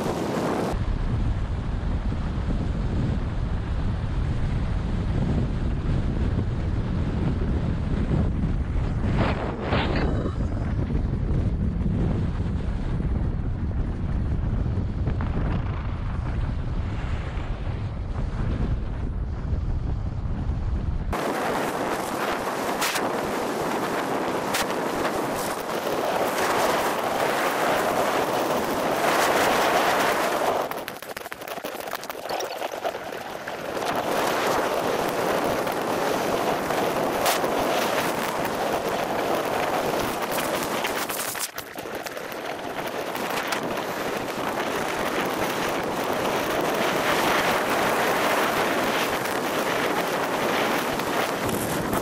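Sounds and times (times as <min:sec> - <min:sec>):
skis scraping on snow: 0:21.2 - 0:52.0
sharp ski clicks: 0:22.0 - 0:23.4, 0:24.2 - 0:32.4, 0:33.8 - 0:52.0.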